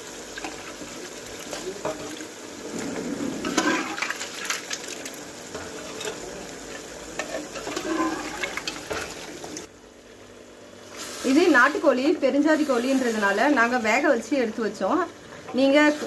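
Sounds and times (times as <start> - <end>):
food squelching and sloshing in pot: 0.2 - 9.7.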